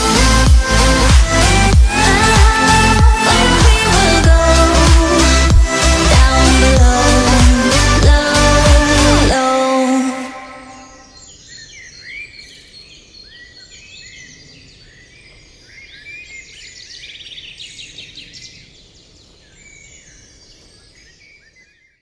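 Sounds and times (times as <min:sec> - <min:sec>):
songbirds chirping and whistling: 0:10.7 - 0:22.0.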